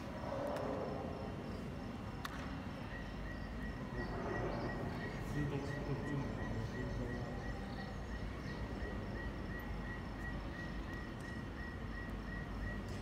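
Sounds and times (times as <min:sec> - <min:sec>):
insect-like high chirping: 0:02.8 - 0:12.8.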